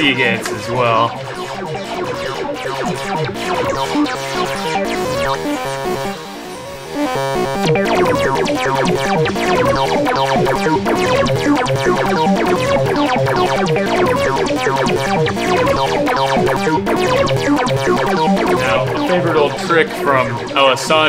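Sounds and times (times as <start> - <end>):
short synth notes: 0.0 - 21.0
low synth bass note: 7.0 - 21.0.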